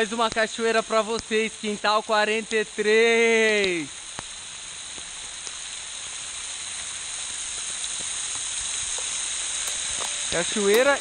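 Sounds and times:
waterfall spray hissing: 0.2 - 11.0
faint ticks: 7.5 - 11.0.

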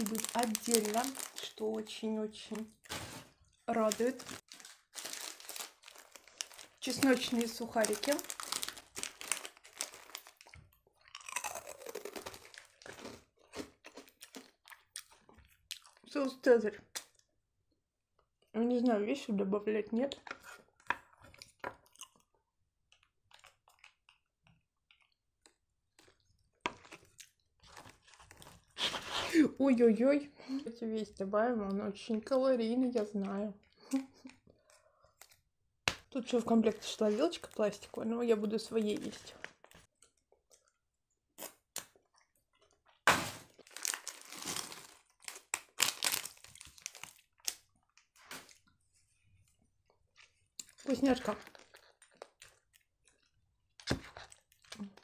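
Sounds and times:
plastic bag crackling: 0.0 - 10.5, 43.2 - 47.6
crunchy chewing: 8.3 - 16.0.

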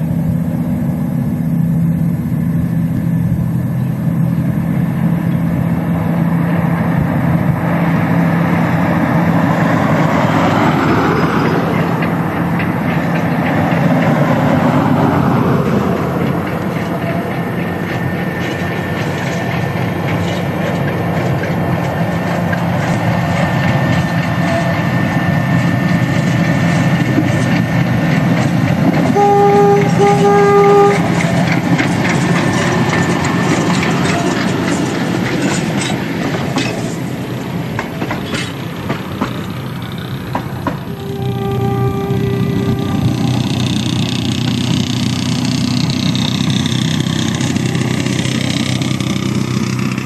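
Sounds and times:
locomotive running under load: 0.0 - 50.0
wheels clicking over rail joints: 3.8 - 50.0
locomotive horn: 29.0 - 31.4, 40.8 - 45.0.

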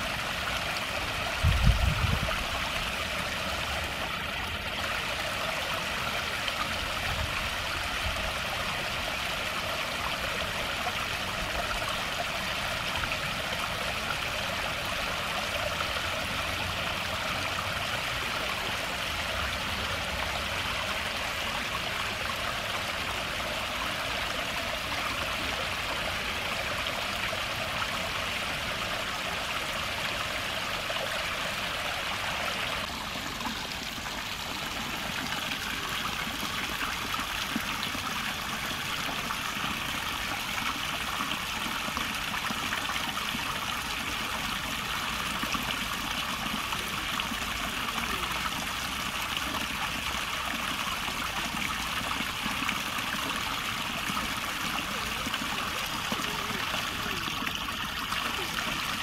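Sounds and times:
stream trickling over stones: 0.0 - 59.0.

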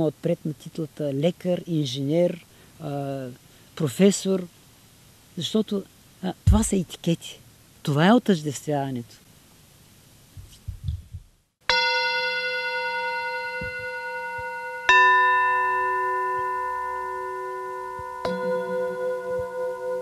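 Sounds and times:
metal singing bowls ringing: 11.7 - 20.0.

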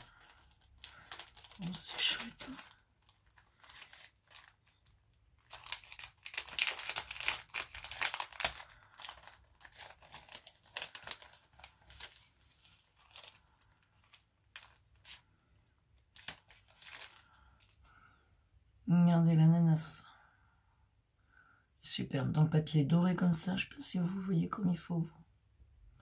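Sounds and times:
paper crinkling and rustling: 0.0 - 15.3, 16.0 - 17.9.

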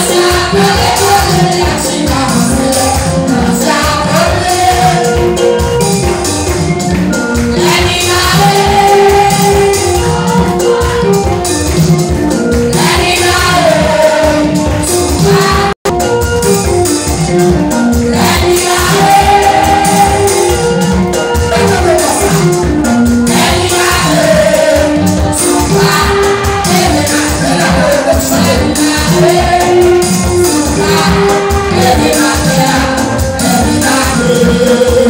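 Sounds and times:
group singing: 0.0 - 15.8, 18.0 - 35.0
fast percussion beat: 0.0 - 35.0.

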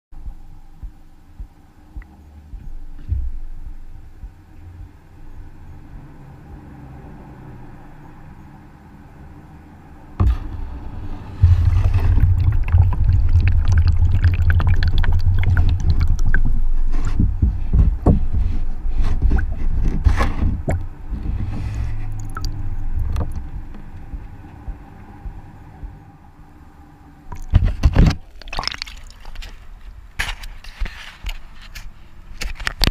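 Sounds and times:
water sloshing and gurgling: 10.2 - 26.0, 27.3 - 29.9
water pouring into bucket: 11.4 - 16.6, 22.1 - 22.5, 28.2 - 29.5.

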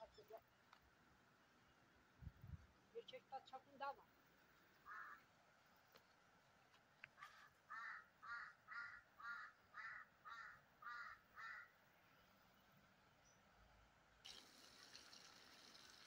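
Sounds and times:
faint bird calls: 4.8 - 5.9, 7.1 - 12.4.

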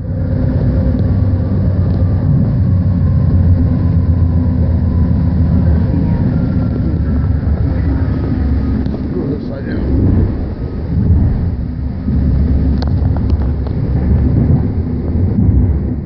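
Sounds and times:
train rumbling on rails: 0.0 - 16.0.

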